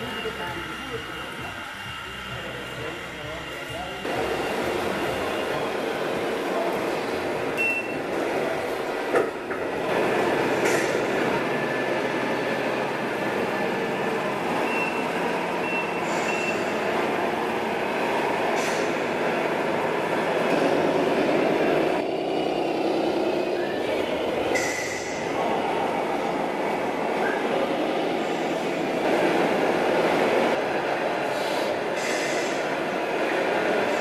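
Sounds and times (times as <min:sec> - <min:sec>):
short high beeps: 0:07.6 - 0:08.0, 0:14.6 - 0:16.7
brief hisses: 0:16.0 - 0:16.7, 0:18.6 - 0:19.0, 0:31.3 - 0:32.7.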